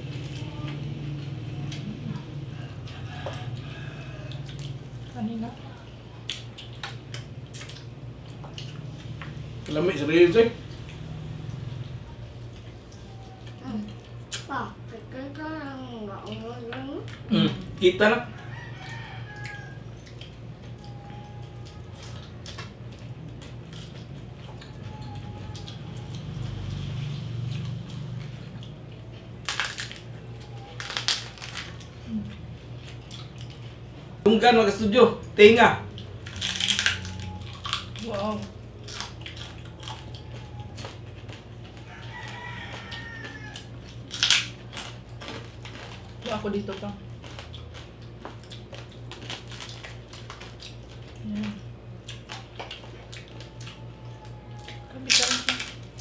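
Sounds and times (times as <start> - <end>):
crispy pork skin crunching: 0.0 - 14.5, 17.1 - 56.0
steady low background hum: 0.0 - 56.0.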